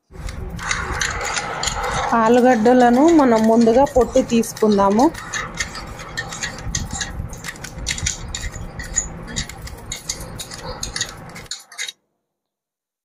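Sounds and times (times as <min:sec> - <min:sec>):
peeler scraping potato skin: 0:00.3 - 0:12.0.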